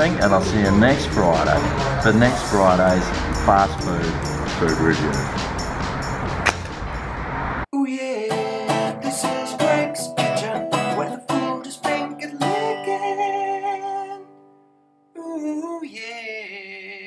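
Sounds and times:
guitar plucked and strummed: 8.3s - 15.1s.

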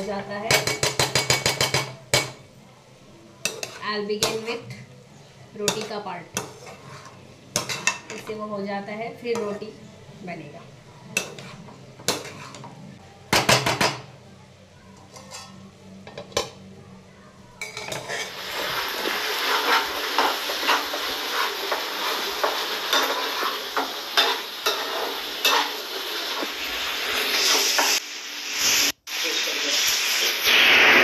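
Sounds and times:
vegetables sizzling in pan: 0.0s - 4.7s, 5.5s - 9.7s, 17.6s - 31.0s
spoon scraping pan: 3.4s - 4.7s, 5.6s - 8.4s, 11.0s - 12.8s, 15.0s - 15.6s, 17.6s - 28.0s.

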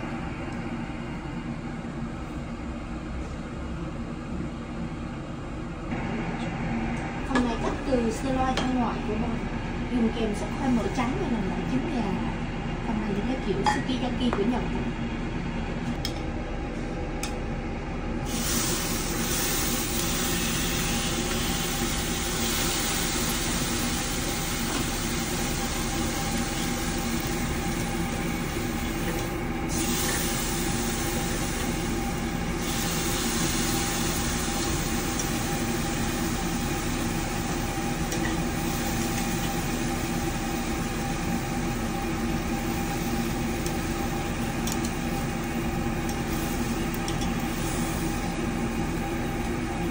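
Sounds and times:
low mechanical hum: 0.0s - 49.9s
beef sizzling on a grill: 18.3s - 45.3s.

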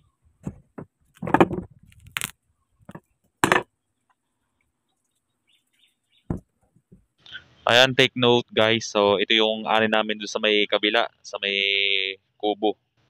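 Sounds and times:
watermelon cracking and knocking: 0.4s - 3.7s.

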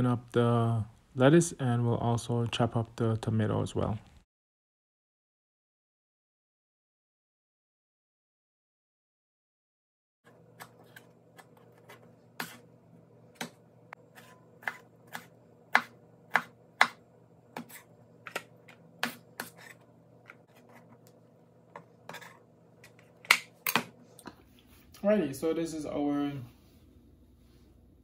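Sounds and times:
knife chopping on plastic board: 10.5s - 12.6s, 13.3s - 20.9s, 21.7s - 24.0s.

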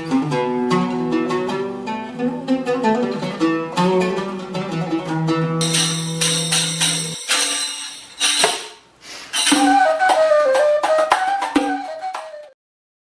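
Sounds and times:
instrumental background music: 0.0s - 12.6s
sharp percussion hits: 5.6s - 10.3s.

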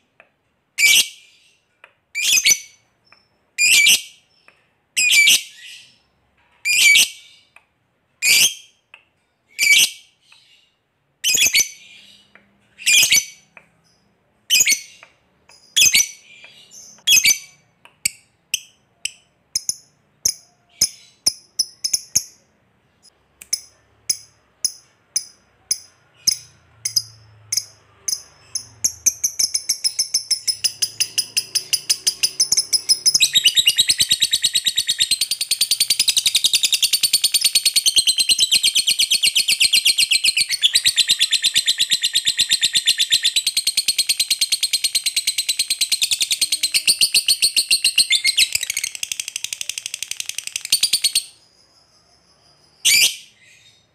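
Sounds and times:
lovebird calling: 23.5s - 44.3s
lovebird chattering trill: 23.5s - 51.4s.

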